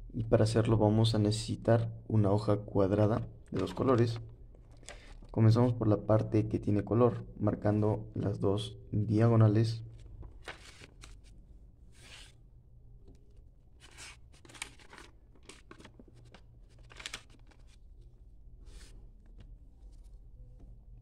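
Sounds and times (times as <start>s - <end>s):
paper rustling and swishing: 9.9s - 12.4s, 13.8s - 20.4s.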